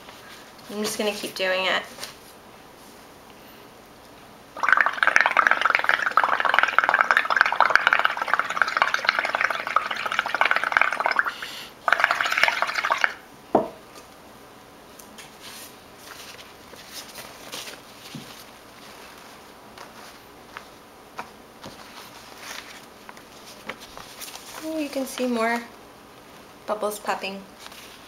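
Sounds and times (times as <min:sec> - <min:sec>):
air bubbling through straw: 0:04.6 - 0:13.2.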